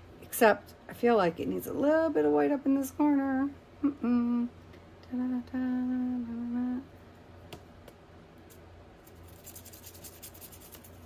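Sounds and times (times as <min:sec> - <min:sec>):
scratchy brush strokes on paper: 0:09.0 - 0:11.0.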